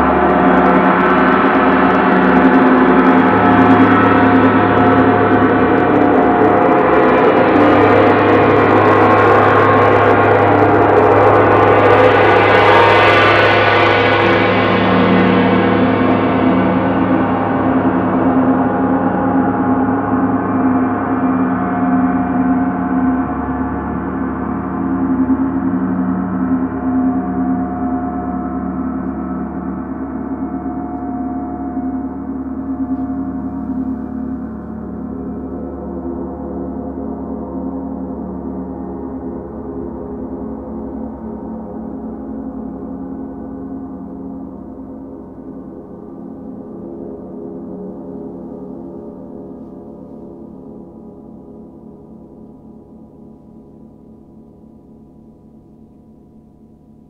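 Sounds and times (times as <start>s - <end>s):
gongs ringing: 0.0s - 39.9s.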